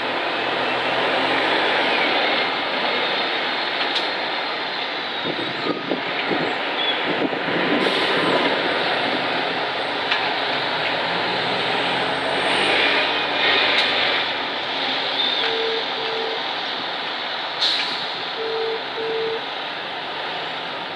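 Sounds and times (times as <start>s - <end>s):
bus and cars driving past: 0.0s - 20.9s
short beeps: 15.4s - 16.4s, 18.4s - 19.4s.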